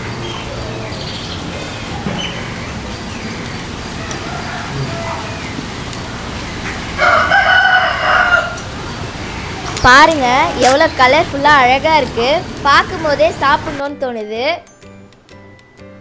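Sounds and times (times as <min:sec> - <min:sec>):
rooster crowing loudly: 0:04.0 - 0:05.6, 0:07.0 - 0:08.8.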